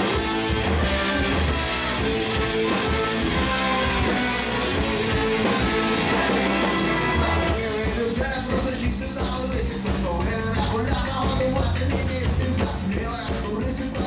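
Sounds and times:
drum kit beat: 0.0 - 14.0
electric guitar: 0.0 - 14.0.

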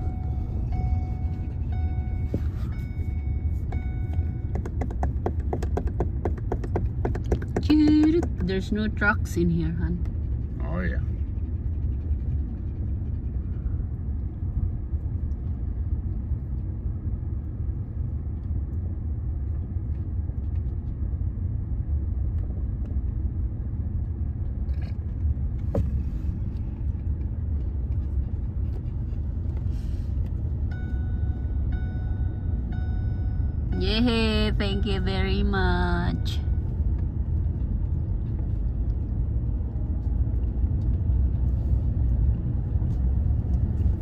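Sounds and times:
car engine and tyres rumbling: 0.0 - 44.0
electronic chime: 30.7 - 33.9.

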